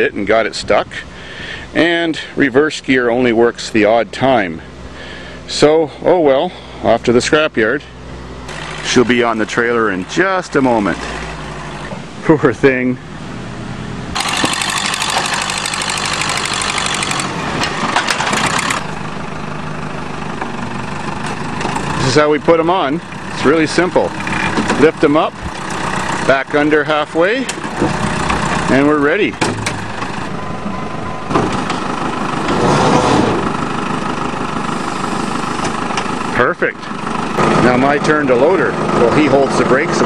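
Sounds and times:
backhoe loader engine: 0:03.4 - 0:40.0
loud dense clattering: 0:14.2 - 0:18.9.

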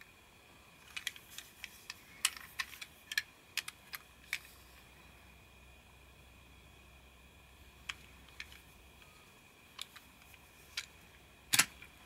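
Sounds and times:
plastic toy train clicks: 0:00.8 - 0:04.5.

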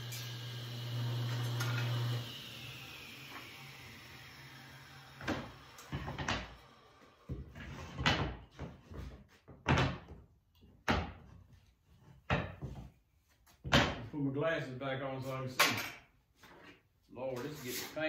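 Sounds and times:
table saw winding down: 0:00.0 - 0:07.3.

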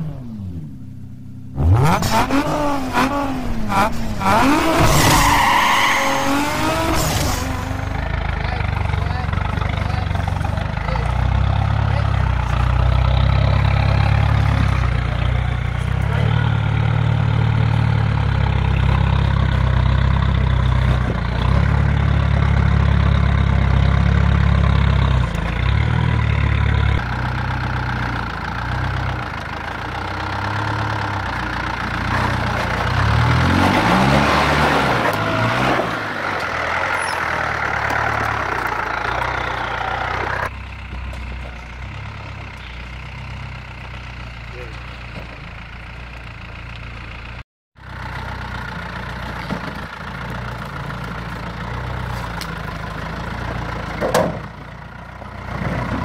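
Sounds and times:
engine revving at low speed: 0:00.0 - 0:29.3.

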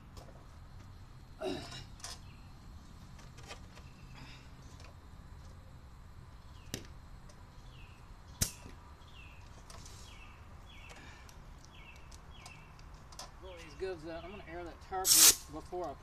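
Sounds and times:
bird chirping: 0:01.9 - 0:02.9, 0:06.3 - 0:14.8.

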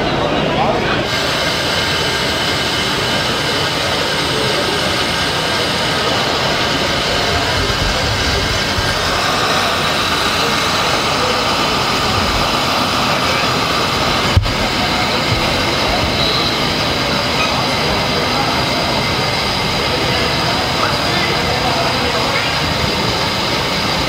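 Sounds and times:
crowd voices: 0:00.0 - 0:24.0.

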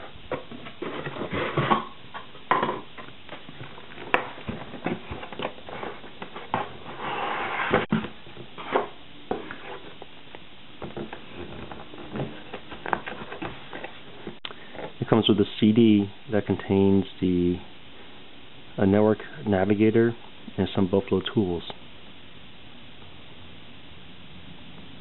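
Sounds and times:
cardboard packaging rustling: 0:00.0 - 0:10.2, 0:10.8 - 0:15.0.

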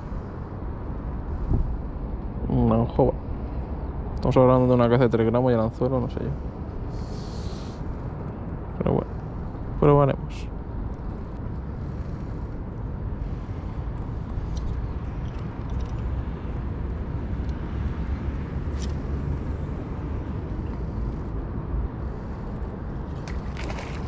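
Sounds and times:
outdoor low rumble: 0:00.0 - 0:24.0.

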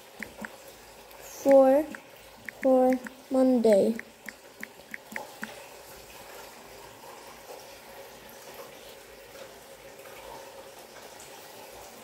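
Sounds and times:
phone keyboard taps: 0:03.9 - 0:05.5.

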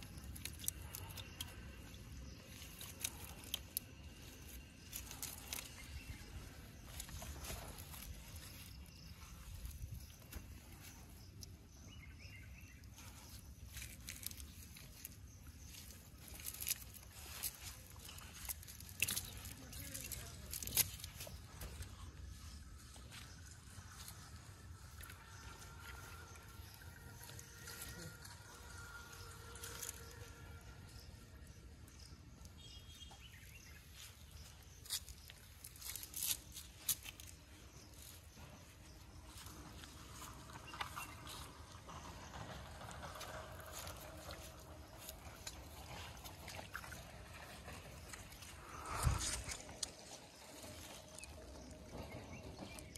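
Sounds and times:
insect calls: 0:00.0 - 0:52.9
low rumble: 0:38.6 - 0:52.9.

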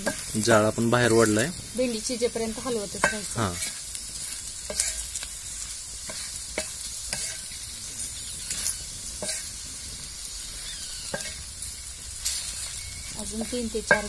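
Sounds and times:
okra sizzling in oil: 0:00.0 - 0:14.0
wooden spatula scraping pan: 0:02.4 - 0:09.6, 0:10.5 - 0:11.4, 0:12.2 - 0:14.0.

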